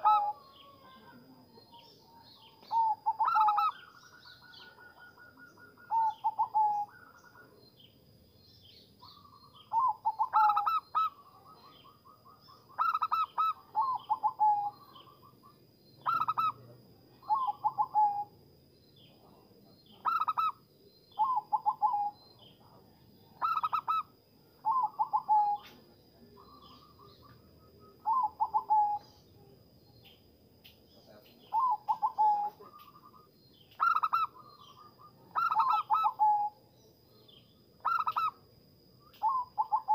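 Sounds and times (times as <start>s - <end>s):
dove cooing: 0.0s - 1.4s, 2.4s - 7.6s, 9.2s - 15.2s, 16.0s - 18.3s, 20.0s - 22.3s, 23.4s - 29.2s, 31.4s - 36.6s, 37.8s - 38.4s, 39.2s - 39.9s.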